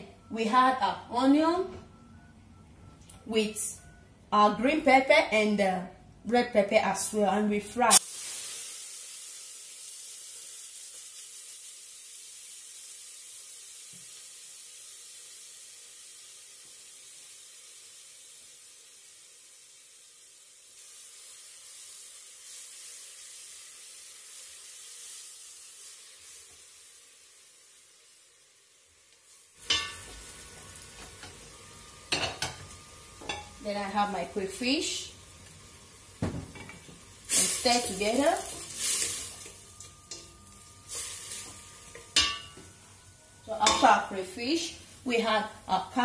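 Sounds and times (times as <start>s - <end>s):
vegetables sizzling in oil: 7.7s - 46.0s.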